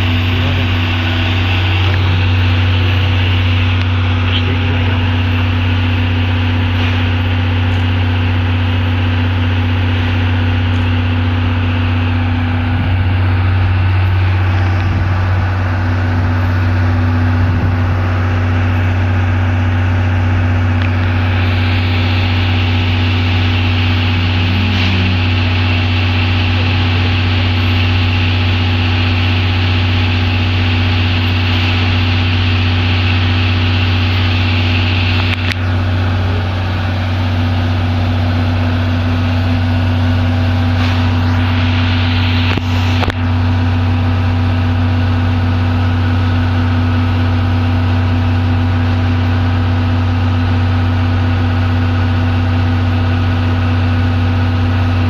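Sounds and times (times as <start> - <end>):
diesel engine idling: 0.0 - 55.0
steam locomotive hissing: 21.1 - 35.3, 40.2 - 43.4.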